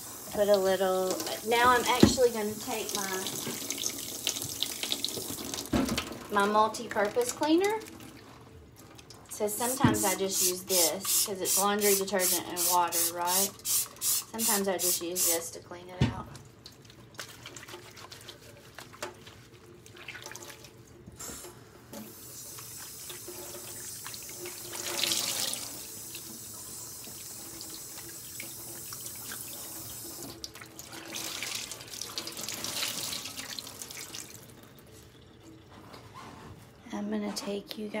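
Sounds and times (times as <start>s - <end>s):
faucet running into steel sink: 0.0s - 5.8s, 9.3s - 15.5s, 21.3s - 35.6s
cloth splashing in water: 16.6s - 20.7s.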